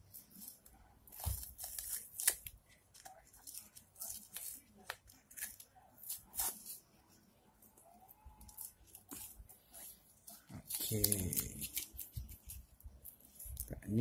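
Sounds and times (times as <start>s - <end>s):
masking tape being peeled off: 0.3s - 6.8s, 10.4s - 13.6s.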